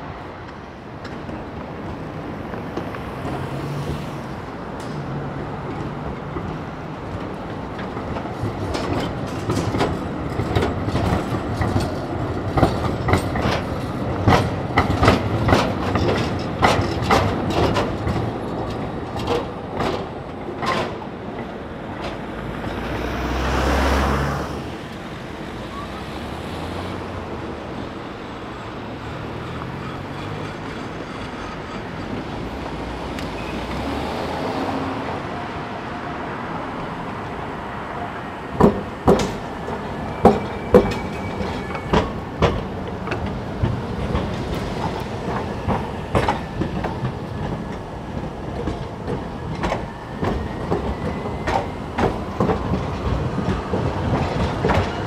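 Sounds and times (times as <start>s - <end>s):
tram running rumble: 0.0s - 55.0s
tram wheels knocking over rail joints: 4.7s - 23.0s, 38.4s - 55.0s
faint wheel squeal: 33.3s - 33.9s, 39.9s - 42.1s.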